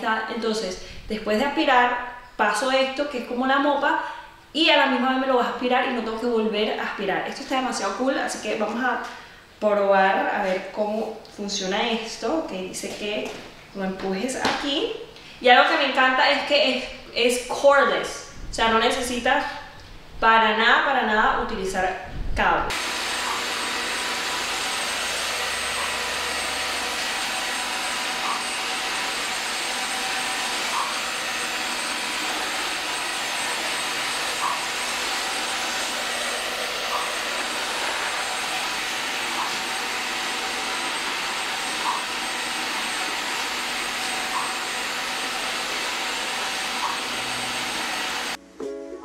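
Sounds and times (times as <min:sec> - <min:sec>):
vacuum mop running: 0:22.7 - 0:48.4.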